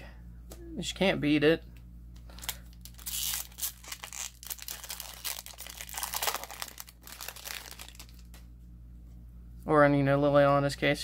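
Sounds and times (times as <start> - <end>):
foil wrapper tearing and crinkling: 2.4 - 8.3.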